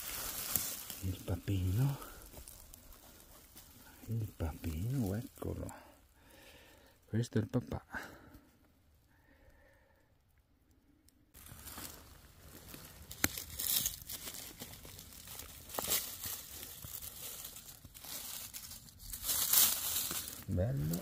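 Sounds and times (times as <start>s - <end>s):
dry leaves rustling and crackling: 0.0s - 5.9s, 11.4s - 21.0s.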